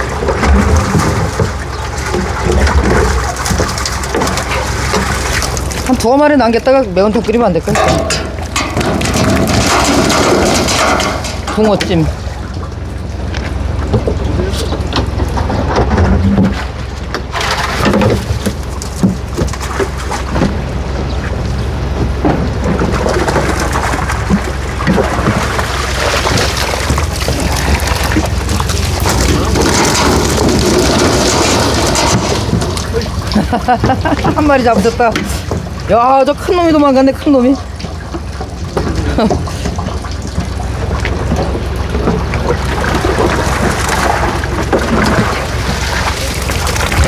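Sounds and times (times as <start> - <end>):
fish splashing into water: 0.0 - 6.0, 22.9 - 34.4, 37.6 - 47.0
steady low hum: 0.0 - 47.0.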